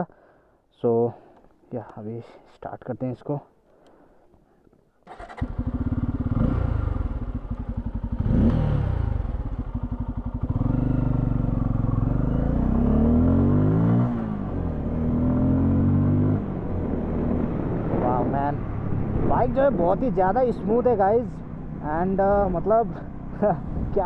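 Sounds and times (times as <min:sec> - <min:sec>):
motorcycle engine starting: 0:05.0 - 0:13.0.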